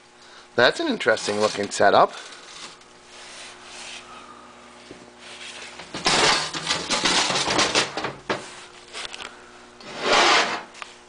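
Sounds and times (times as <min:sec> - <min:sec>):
metal parts scraping and clattering: 0:01.0 - 0:02.8, 0:05.9 - 0:08.1.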